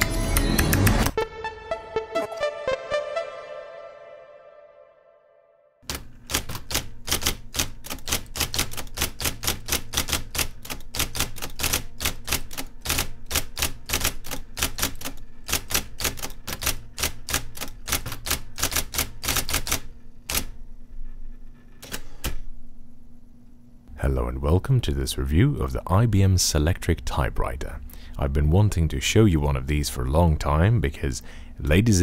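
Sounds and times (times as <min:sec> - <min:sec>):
typewriter typing clicks: 0:05.8 - 0:20.6
typewriter motor hum: 0:05.8 - 0:22.5.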